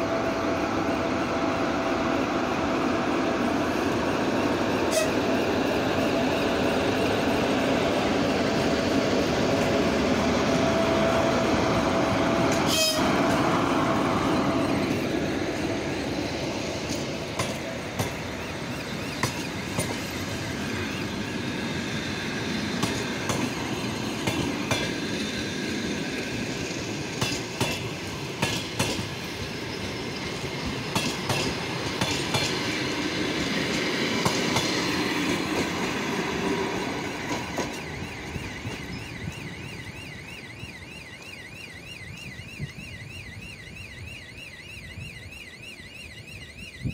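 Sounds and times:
train rumble: 0:00.0 - 0:41.3
warbling level-crossing warning signal: 0:00.0 - 0:46.9
train wheels clicking over rail joints: 0:03.9 - 0:40.3.

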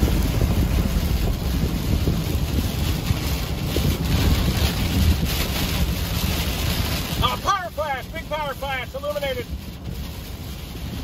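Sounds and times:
vehicle road rumble: 0:00.0 - 0:11.0
wind buffeting microphone: 0:00.0 - 0:11.0.

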